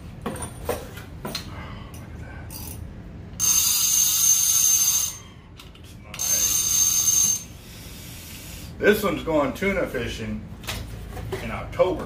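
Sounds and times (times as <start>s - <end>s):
fishing reel cranked buzzing rattle: 3.4s - 5.2s, 6.2s - 7.4s.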